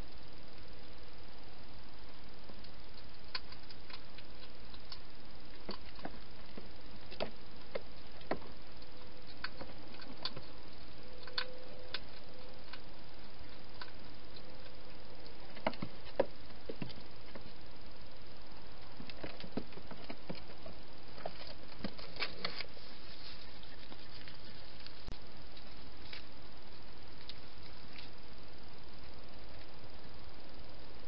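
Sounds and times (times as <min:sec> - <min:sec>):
steady hiss: 0:00.0 - 0:31.0
hedgehog eating crunches: 0:02.5 - 0:17.6, 0:18.8 - 0:28.2.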